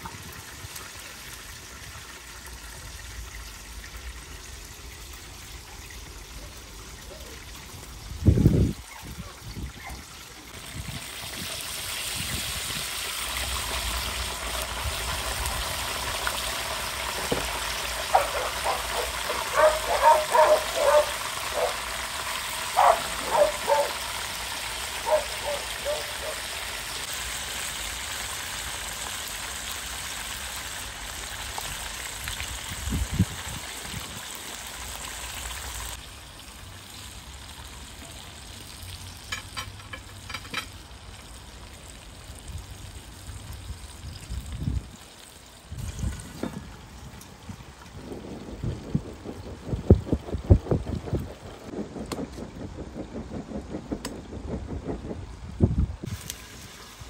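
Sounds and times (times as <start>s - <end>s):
chicken sizzling in hot oil: 10.4s - 51.7s, 56.0s - 57.0s.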